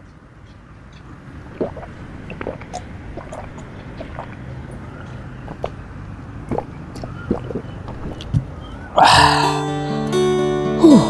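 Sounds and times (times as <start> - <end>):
man swallowing and slurping: 1.5 - 4.6, 5.4 - 5.8, 6.4 - 9.6.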